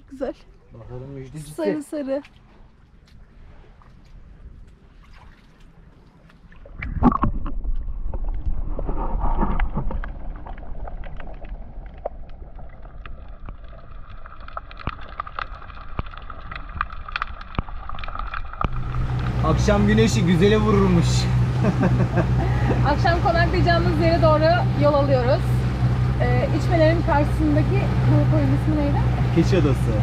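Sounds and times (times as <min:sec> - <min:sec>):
water splashing along hull: 0:00.0 - 0:30.0.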